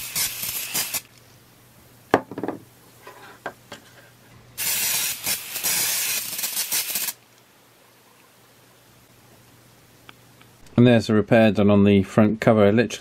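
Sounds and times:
aerosol spray can hissing: 0:00.0 - 0:01.1, 0:04.6 - 0:07.2.

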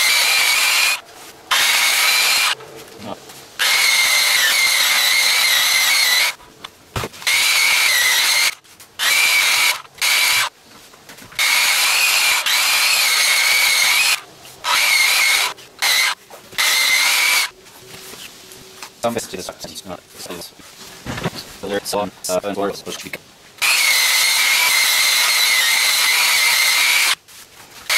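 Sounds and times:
sander motor whining: 0:00.0 - 0:02.6, 0:03.6 - 0:06.4, 0:07.2 - 0:10.5, 0:11.4 - 0:17.5.

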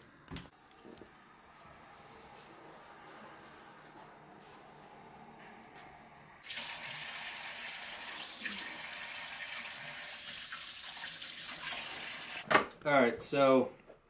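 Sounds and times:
faucet running into steel sink: 0:06.4 - 0:12.4.

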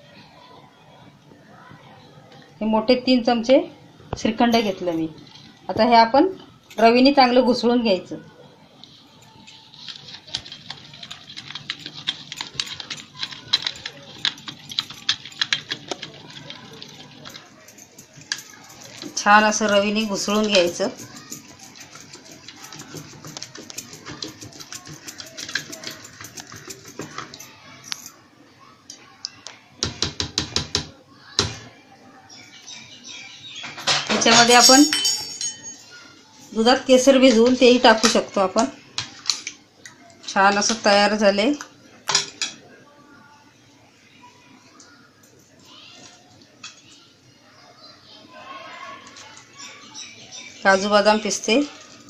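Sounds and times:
liquid swishing: 0:09.6 - 0:27.4.

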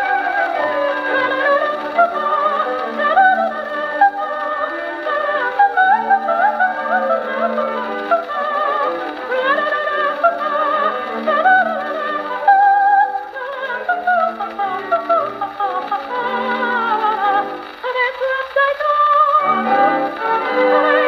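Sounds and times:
soprano singing with vibrato: 0:00.0 - 0:21.0
orchestral accompaniment: 0:19.4 - 0:21.0.

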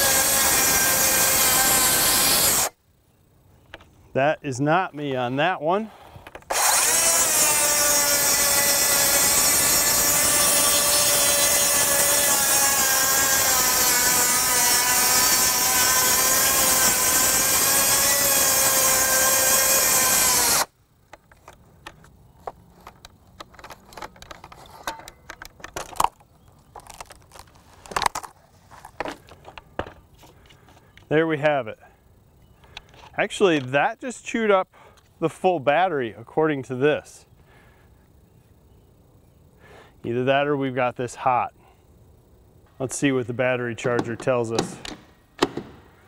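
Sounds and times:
circular saw cutting board: 0:00.0 - 0:02.8, 0:06.5 - 0:20.7.

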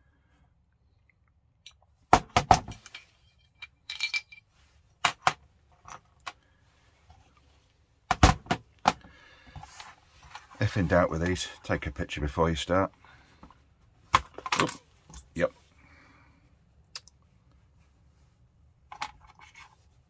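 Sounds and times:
metallic clink: 0:02.7 - 0:04.5.

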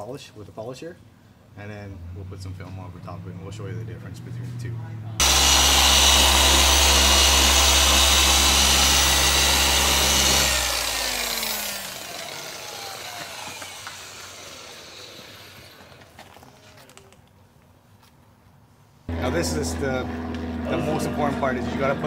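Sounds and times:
handheld polisher running: 0:05.2 - 0:16.2.

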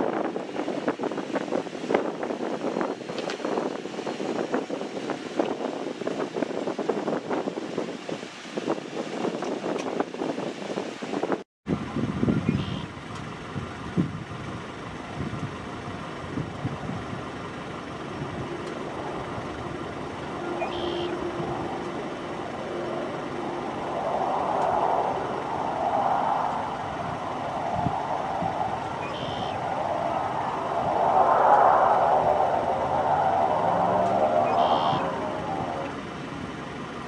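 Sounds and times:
distant propeller plane engine: 0:11.8 - 0:37.0
short high beeps: 0:34.5 - 0:35.1.

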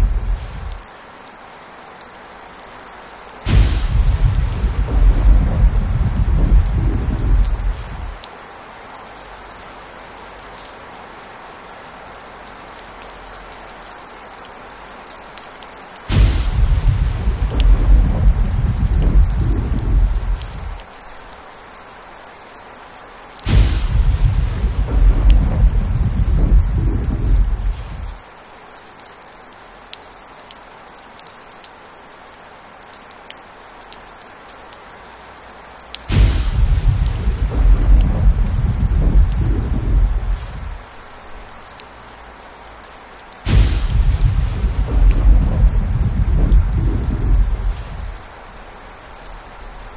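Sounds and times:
thunder rumbling: 0:00.0 - 0:00.8, 0:03.4 - 0:08.2, 0:16.1 - 0:20.9, 0:23.4 - 0:28.2, 0:36.1 - 0:41.0, 0:43.4 - 0:49.9
heavy rain: 0:00.0 - 0:49.9.

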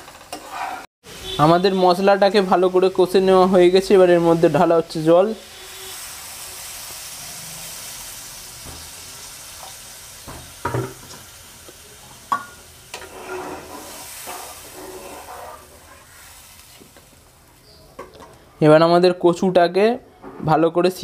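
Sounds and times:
food sizzling in a pan: 0:00.0 - 0:18.3
spatula knocking and scraping pan: 0:12.3 - 0:16.0.

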